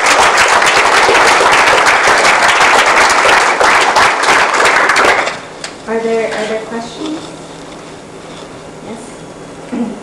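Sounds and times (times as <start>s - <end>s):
audience applauding: 0.0s - 5.5s.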